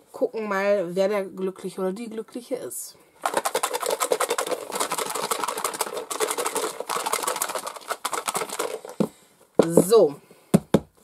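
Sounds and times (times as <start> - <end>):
paper slips rattling in a box: 3.2 - 9.0.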